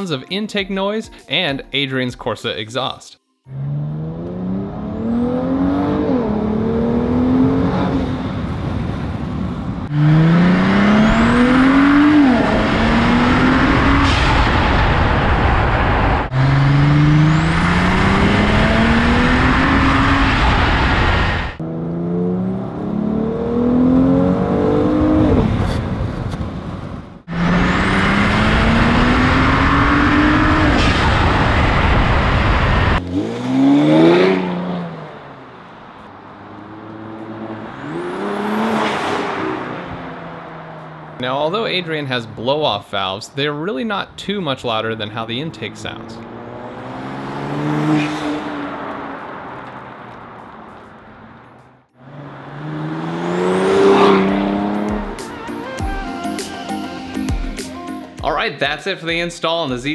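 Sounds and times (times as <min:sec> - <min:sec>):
car engine accelerating hard: 0:03.5 - 0:41.3, 0:45.3 - 0:55.4
car driving past: 0:45.6 - 0:55.2.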